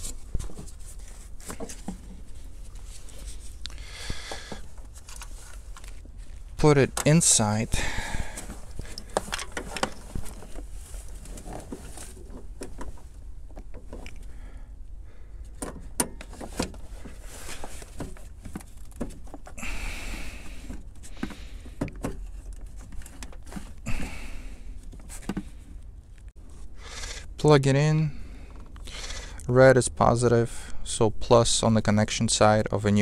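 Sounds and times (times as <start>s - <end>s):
short rustling scrapes: 0.0s - 3.6s, 8.1s - 13.2s, 16.4s - 21.6s.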